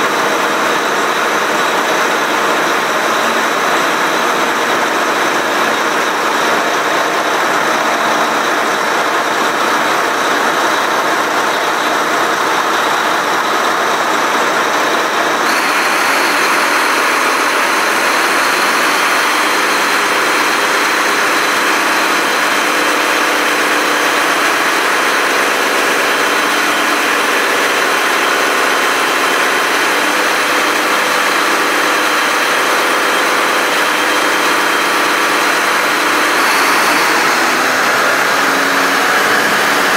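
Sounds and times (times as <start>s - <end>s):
diesel engine running: 0.0s - 39.9s
high hiss and whine: 15.5s - 22.4s, 35.9s - 39.9s.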